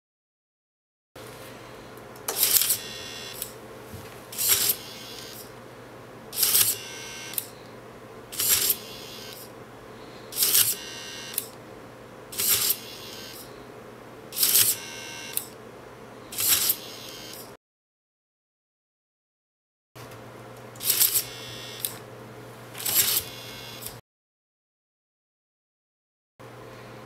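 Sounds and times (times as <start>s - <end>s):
faint steady hum: 1.2s - 16.4s
small electric motor whining: 2.4s - 3.6s, 4.3s - 5.5s, 6.4s - 7.6s, 8.4s - 9.5s, 10.4s - 11.6s, 12.4s - 13.5s, 14.4s - 15.6s, 16.3s - 17.6s, 20.8s - 22.0s, 22.8s - 24.0s
small click: 10.4s - 11.6s, 21.8s - 22.0s
mechanism scrape: 16.4s - 17.2s, 22.8s - 23.9s.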